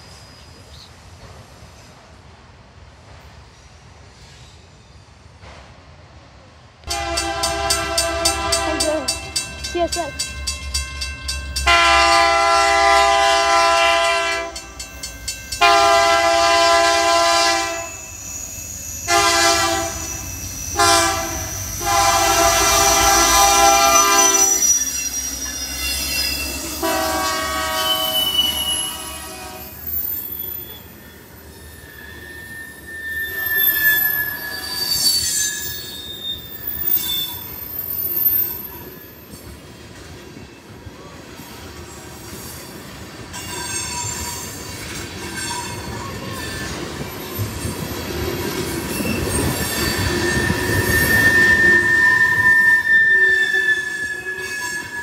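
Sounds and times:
train wheels squealing: 0.0s - 1.9s, 3.4s - 5.4s, 7.1s - 55.0s
rumble of train wheels: 0.0s - 55.0s
locomotive chime air horn: 6.9s - 10.3s, 10.9s - 18.2s, 19.0s - 25.2s, 26.5s - 29.9s, 49.4s - 55.0s
crossing bell ringing: 6.9s - 39.2s, 42.7s - 55.0s.

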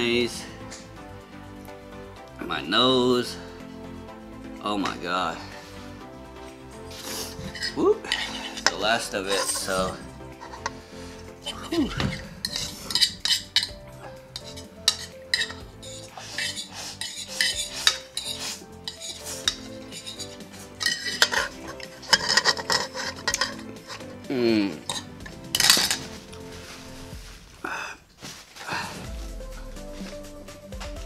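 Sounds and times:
metal spoon scraping ceramic bowl: 6.9s - 10.8s, 11.4s - 13.8s, 14.4s - 24.2s, 24.8s - 26.1s
slurping: 9.6s - 27.0s.

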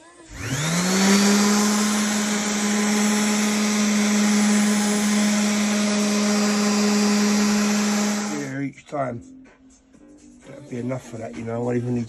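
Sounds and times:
orbital sander humming: 0.3s - 8.6s.

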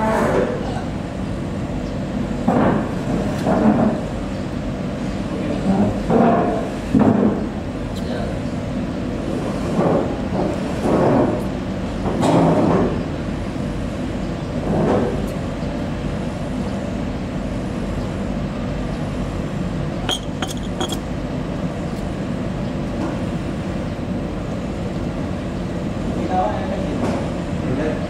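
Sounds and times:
boat engine drone: 0.0s - 5.7s, 13.1s - 22.6s.

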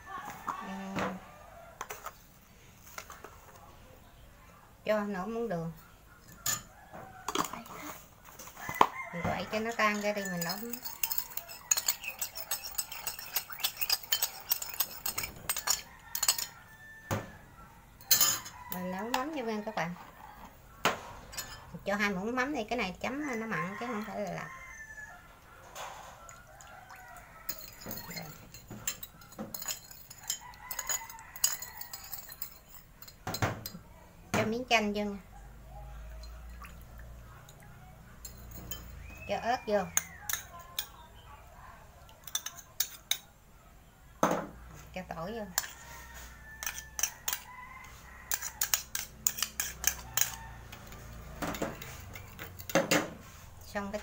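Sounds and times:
metal spoon clinking glass bowl: 6.2s - 6.7s, 7.3s - 7.8s, 8.5s - 16.8s, 18.0s - 19.4s, 21.3s - 22.1s, 26.2s - 33.8s, 36.1s - 41.2s, 42.2s - 43.3s, 45.6s - 52.8s.

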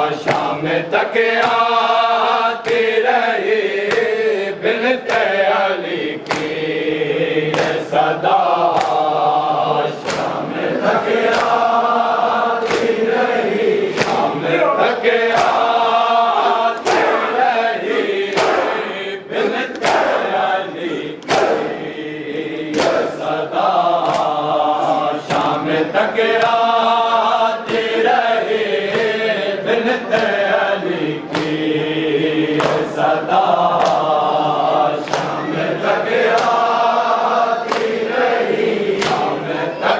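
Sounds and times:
group chanting in chorus: 0.0s - 39.9s
hands beating on chests: 10.0s - 10.4s, 11.2s - 11.7s, 13.9s - 14.4s, 15.3s - 18.9s, 19.7s - 20.3s, 21.2s - 21.8s.

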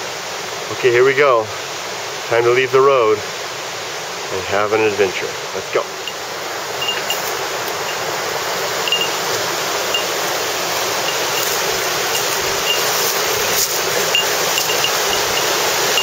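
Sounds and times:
river rushing over boulders: 0.0s - 16.0s
short high chirps: 6.8s - 8.1s, 8.9s - 9.2s, 9.9s - 10.2s, 11.0s - 16.0s.

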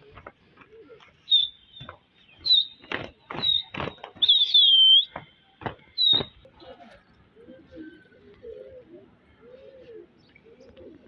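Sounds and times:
birds chirping and whistling: 0.9s - 6.5s.

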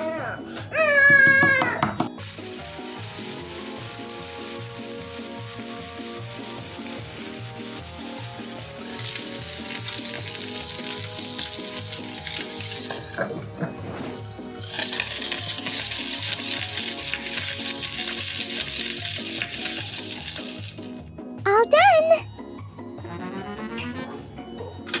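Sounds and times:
background music with steady beat: 0.0s - 25.0s
vegetables sizzling in a pan: 2.2s - 13.4s, 14.1s - 21.1s.

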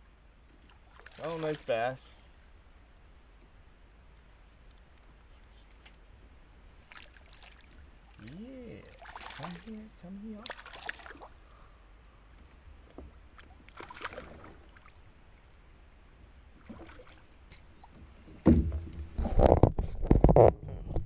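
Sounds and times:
water splashing: 0.6s - 1.8s, 6.8s - 11.4s, 13.3s - 15.0s, 16.6s - 19.4s
knocks on kayak: 18.4s - 19.6s.

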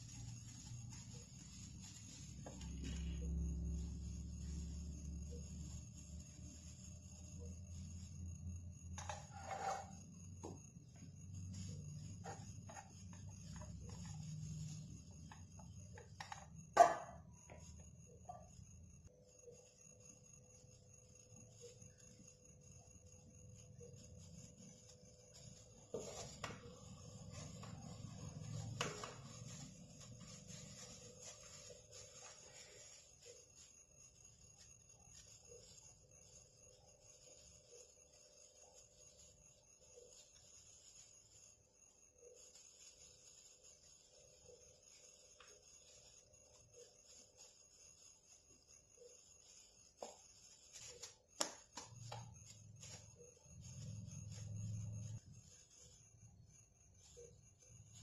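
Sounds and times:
plastic gloves crinkling: 0.0s - 4.9s, 24.1s - 33.7s
hands working dough: 0.0s - 18.4s, 23.1s - 56.0s
faint steady hum: 0.0s - 58.0s.

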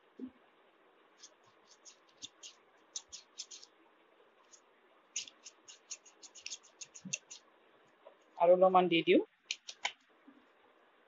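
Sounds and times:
scissor blades rasping: 1.2s - 3.7s, 5.2s - 7.4s.

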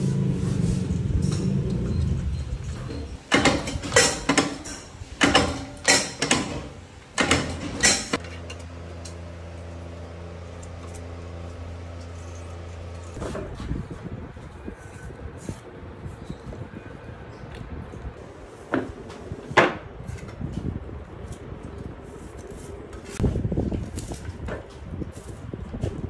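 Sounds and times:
press machine metal clanks: 2.8s - 8.6s.

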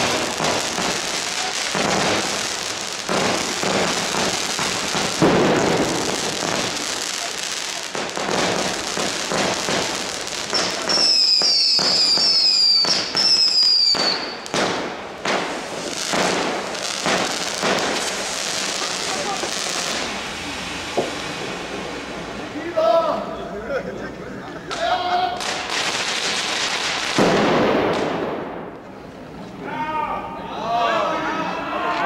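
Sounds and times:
firecracker bangs: 0.0s - 20.2s, 20.9s - 21.6s, 25.4s - 28.9s
fireworks whistling: 0.0s - 22.8s, 25.4s - 29.3s
fireworks crackling and hissing: 0.0s - 29.6s.

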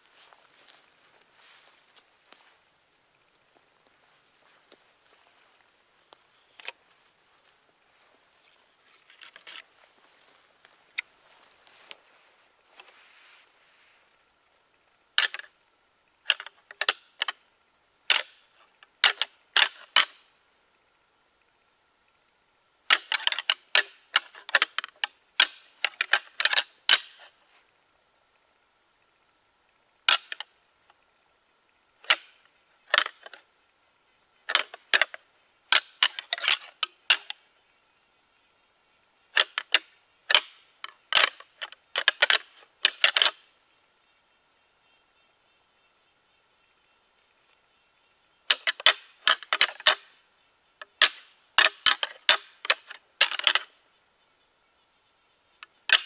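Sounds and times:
antlers clacking together: 18.1s - 18.4s, 19.0s - 20.2s, 22.9s - 27.4s, 32.0s - 33.4s, 34.5s - 37.4s, 39.4s - 43.4s, 48.5s - 50.1s, 50.8s - 53.7s, 55.6s - 56.0s.

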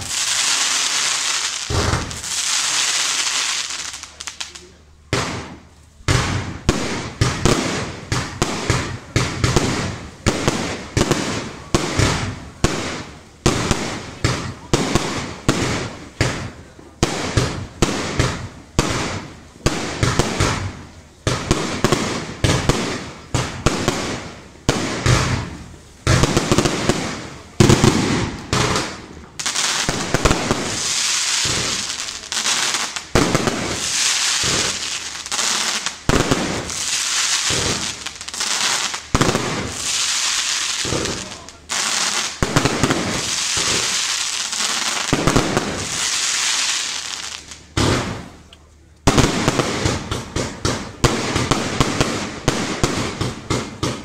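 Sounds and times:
firework crackling: 0.0s - 54.0s
firework shell bursts: 33.7s - 35.1s.

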